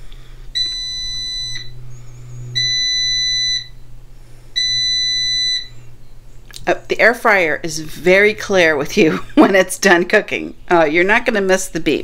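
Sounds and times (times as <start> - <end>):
low steady hum: 0.0 - 12.0
long electronic beeps: 0.5 - 4.0, 4.6 - 6.3.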